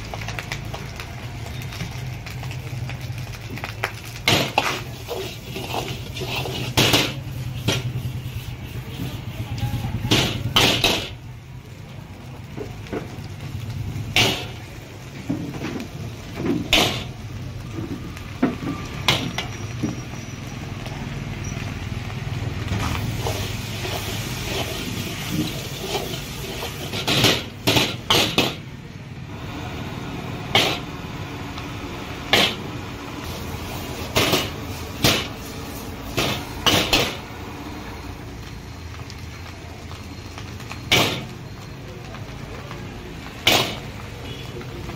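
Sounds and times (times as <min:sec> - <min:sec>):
metal utensil clanking on pan: 0:04.3 - 0:07.9, 0:10.1 - 0:11.2, 0:14.1 - 0:14.6, 0:16.4 - 0:17.1.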